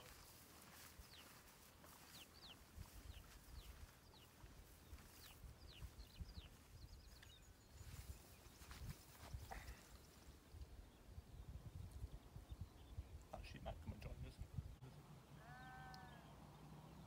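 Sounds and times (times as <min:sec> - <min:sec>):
small bird calling: 0:15.4 - 0:16.4.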